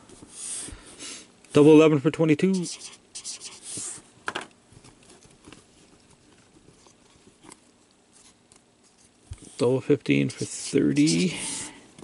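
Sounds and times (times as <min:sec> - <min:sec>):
marker scratching on paper: 0:02.5 - 0:04.0, 0:10.2 - 0:11.7.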